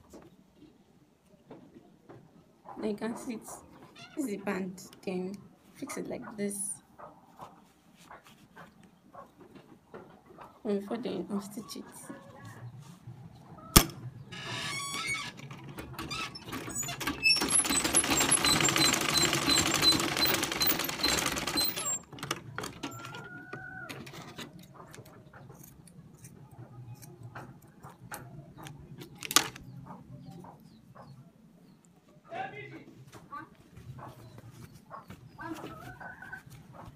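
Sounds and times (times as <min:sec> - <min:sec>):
sewing machine stitching: 0:15.4 - 0:23.3.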